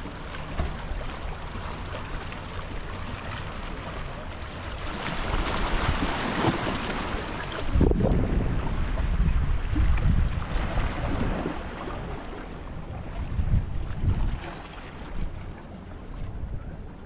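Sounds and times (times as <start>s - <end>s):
waves washing against rocks: 0.0s - 12.4s
wind buffeting microphone: 7.4s - 17.0s.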